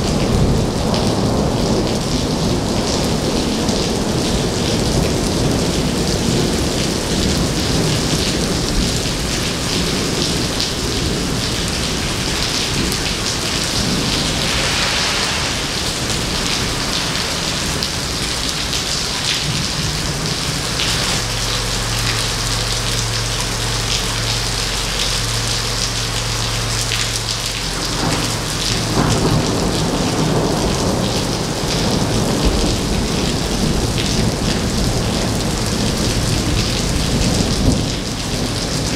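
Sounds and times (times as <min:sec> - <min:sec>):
heavy rain on pavement: 0:00.0 - 0:38.9
low steady hum: 0:12.8 - 0:31.0.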